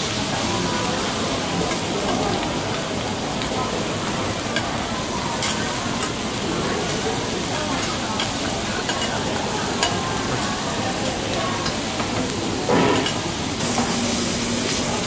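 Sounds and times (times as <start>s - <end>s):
food sizzling on a griddle: 0.0s - 15.0s.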